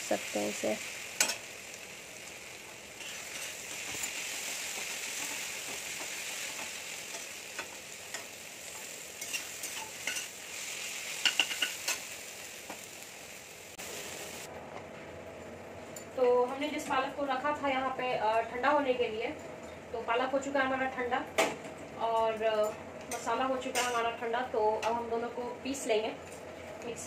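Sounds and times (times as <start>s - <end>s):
onions sizzling in oil: 0.0s - 14.5s.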